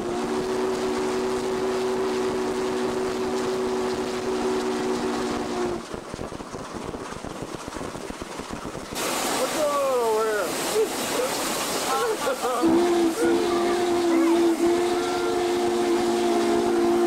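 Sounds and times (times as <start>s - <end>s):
steam locomotive running: 0.0s - 17.0s
chime steam whistle: 12.6s - 17.0s.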